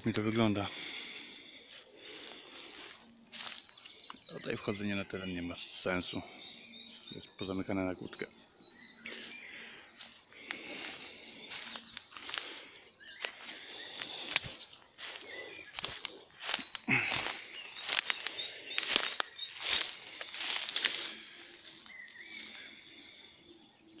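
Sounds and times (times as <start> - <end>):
crunching footsteps outdoors: 0.0 - 23.9
birds chirping: 0.0 - 24.0.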